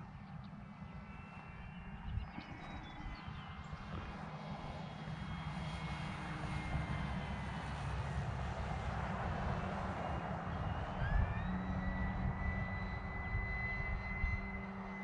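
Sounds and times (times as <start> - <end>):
model plane motor whirring: 9.4 - 15.0.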